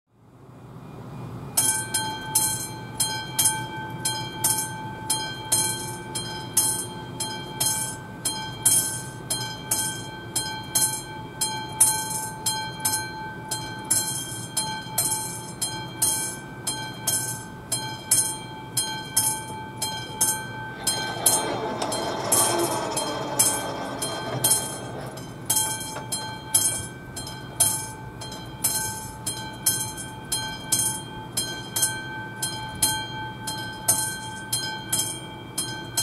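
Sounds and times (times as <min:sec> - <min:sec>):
level crossing bell ringing: 0:01.7 - 0:36.0.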